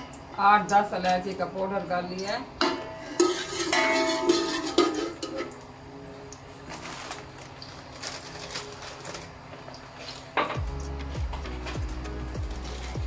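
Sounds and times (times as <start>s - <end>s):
metal spatula scraping pot: 3.0s - 5.6s.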